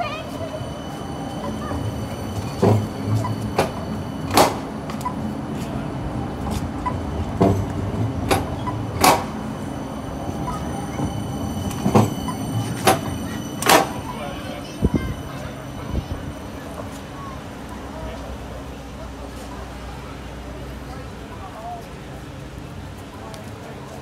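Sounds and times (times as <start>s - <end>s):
tram running hum: 0.0s - 24.0s
sharp clacks of tram: 1.4s - 9.8s, 10.4s - 18.6s.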